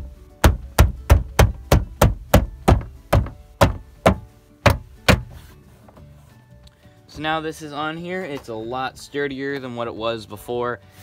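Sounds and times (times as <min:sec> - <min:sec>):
hand knocking on plastic trim: 0:00.4 - 0:05.4.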